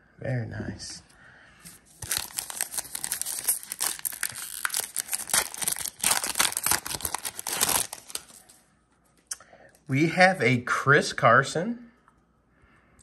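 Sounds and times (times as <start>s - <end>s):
foil wrapper crinkling: 1.9s - 8.6s.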